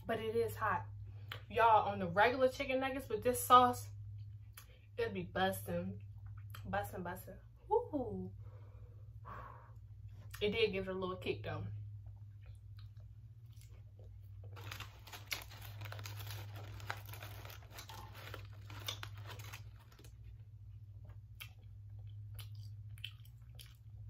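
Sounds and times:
faint low hum: 0:00.0 - 0:24.0
chewing and handling food: 0:11.8 - 0:24.0
paper bag crinkling: 0:14.4 - 0:20.3.

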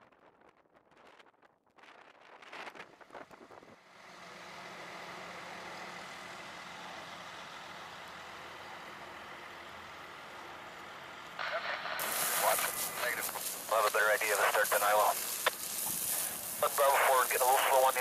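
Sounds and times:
heavy vehicle engine running: 0:03.7 - 0:18.0.

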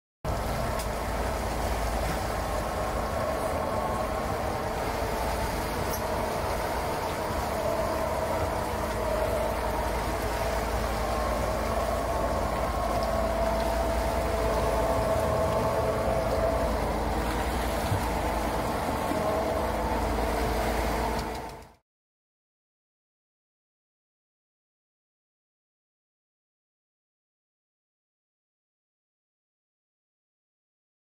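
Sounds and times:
churning boat wake: 0:00.3 - 0:21.8
outboard motors running: 0:00.3 - 0:21.8.

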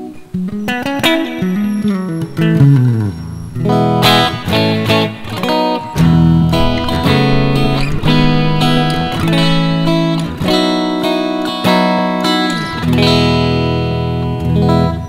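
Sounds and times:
clean electric guitar chords: 0:00.0 - 0:15.0.

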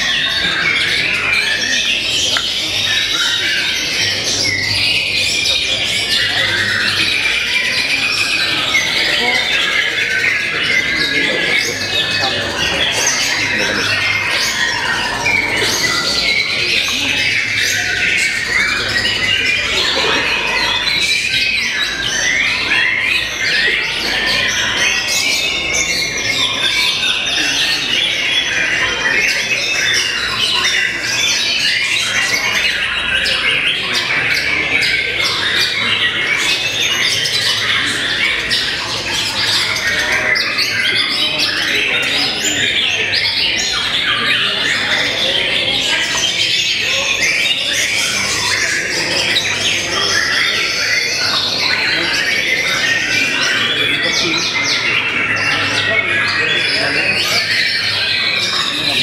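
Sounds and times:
songbirds whistling and trilling: 0:00.0 - 0:59.0.

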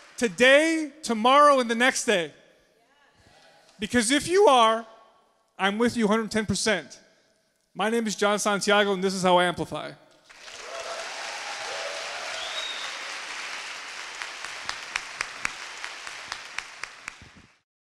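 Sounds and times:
audience applauding: 0:10.3 - 0:17.6.

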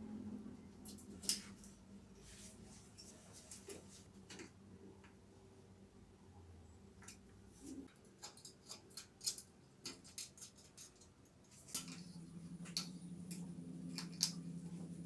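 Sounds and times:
steady low hum: 0:00.0 - 0:07.9, 0:11.4 - 0:15.0.

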